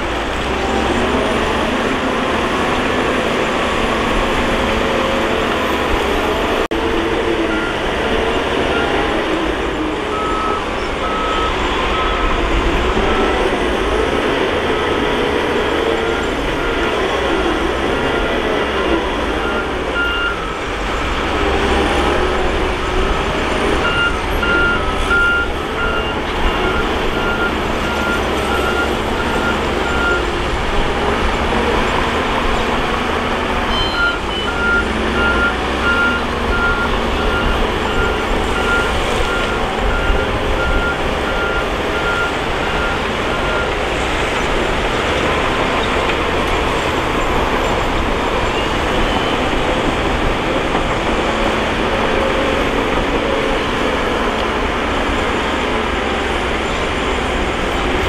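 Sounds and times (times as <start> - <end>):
bulldozer diesel engine running: 0.0 - 58.0
reversing alarm beeping: 10.0 - 13.6, 19.3 - 20.6, 23.8 - 30.3, 33.7 - 43.9.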